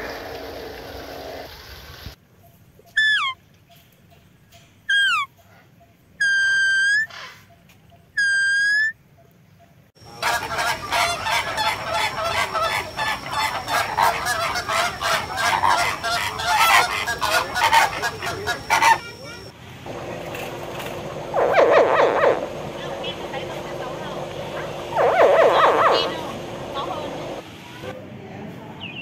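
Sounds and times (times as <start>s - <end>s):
high bird calls: 2.4s - 4.3s, 4.9s - 9.0s, 10.0s - 19.5s, 21.2s - 27.4s
flock of flamingos honking: 10.0s - 19.5s, 21.2s - 27.4s.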